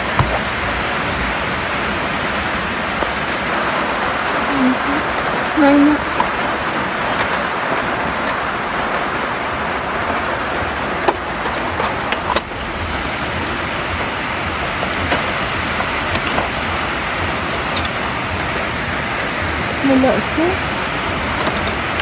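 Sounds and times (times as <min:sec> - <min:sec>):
steady background hiss: 0:00.0 - 0:22.0
clicks and knocks of plastic parts: 0:10.0 - 0:18.0, 0:21.1 - 0:22.0.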